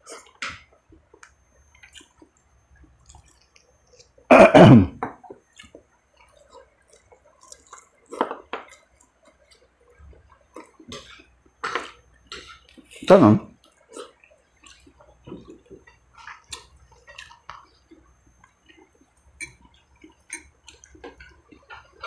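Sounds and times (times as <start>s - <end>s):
man clearing his throat: 4.3s - 5.0s.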